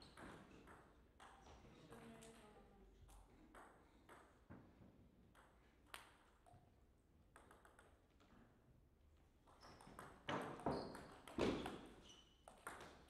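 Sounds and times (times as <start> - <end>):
table tennis ball bouncing: 0.0 - 2.4, 3.5 - 4.7, 5.3 - 6.6, 7.3 - 8.3, 9.5 - 13.0.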